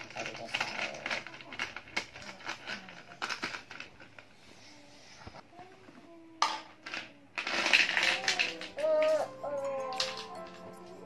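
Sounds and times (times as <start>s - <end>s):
plastic toy pieces clicking: 0.0s - 3.9s, 6.4s - 9.2s, 9.9s - 10.6s.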